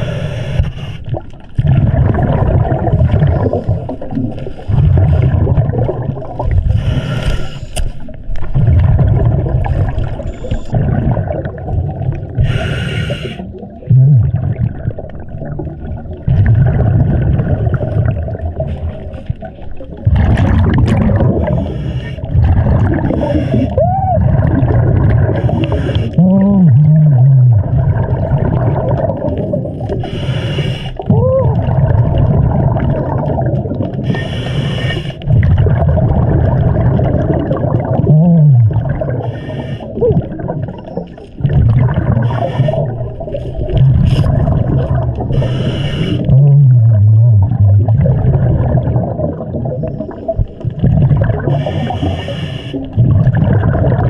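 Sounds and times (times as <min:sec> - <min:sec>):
exhaled bubbles rumbling underwater: 0:00.0 - 0:54.0
regulator hissing inhales: 0:12.4 - 0:13.5, 0:30.0 - 0:31.0, 0:34.0 - 0:35.2, 0:39.3 - 0:40.0, 0:45.3 - 0:46.3, 0:51.6 - 0:52.9.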